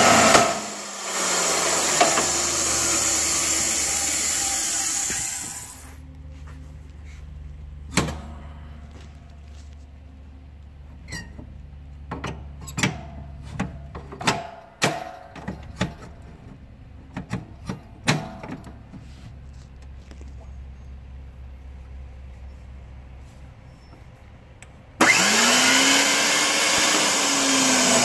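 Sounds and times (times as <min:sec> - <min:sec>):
steady low hum: 0:05.0 - 0:12.1.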